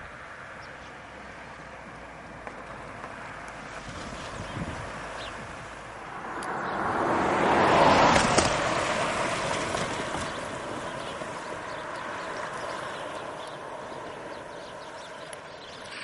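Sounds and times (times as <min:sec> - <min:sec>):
car tyres hissing on wet road: 0:06.9 - 0:14.5.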